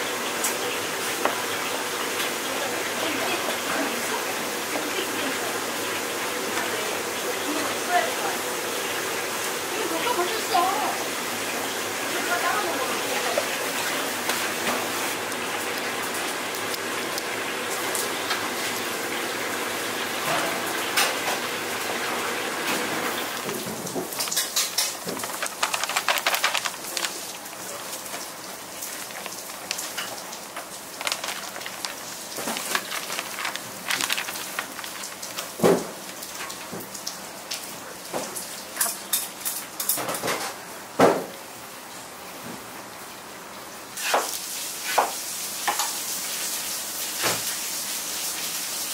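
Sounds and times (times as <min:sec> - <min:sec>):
kitchen background noise: 0:00.0 - 0:48.9
crackly rustle of hand mixing: 0:11.8 - 0:18.9, 0:21.8 - 0:38.5
flour pouring into a bowl: 0:28.8 - 0:36.4.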